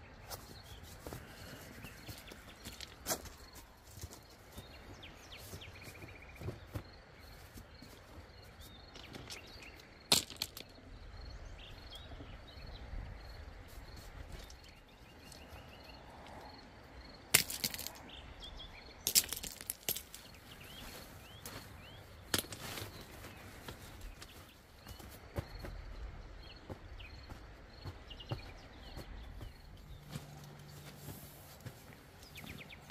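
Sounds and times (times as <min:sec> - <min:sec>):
pebbles clacking and shifting: 0:08.9 - 0:10.8, 0:17.3 - 0:18.1, 0:19.0 - 0:20.4, 0:22.3 - 0:23.9.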